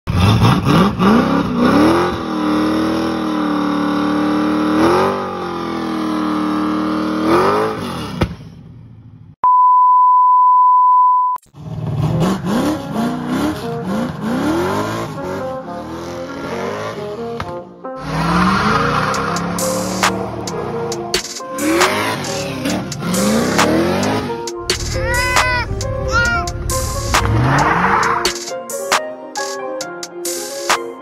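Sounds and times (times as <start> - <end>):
car engine revving: 0.1 - 9.2, 11.6 - 17.4, 18.0 - 28.9
steady electronic beep: 9.4 - 11.4
music: 12.2 - 31.0
tyres spinning in burnout: 18.0 - 28.3.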